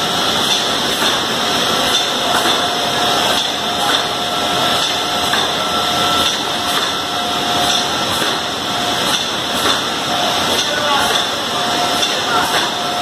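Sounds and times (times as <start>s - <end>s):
faint machine whine: 2.1s - 8.0s.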